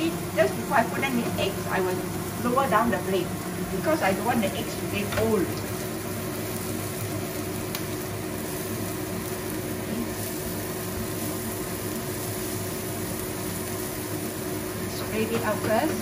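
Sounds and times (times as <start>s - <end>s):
steady hum: 0.0s - 16.0s
vegetables sizzling in a pan: 0.0s - 16.0s.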